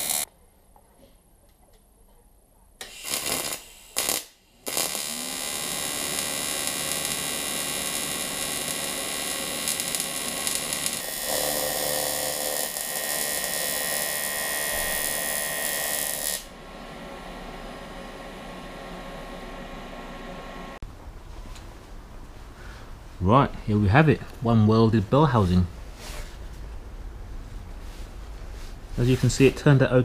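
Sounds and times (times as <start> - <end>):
welding arc buzzing: 0.0 - 0.3, 2.8 - 20.8.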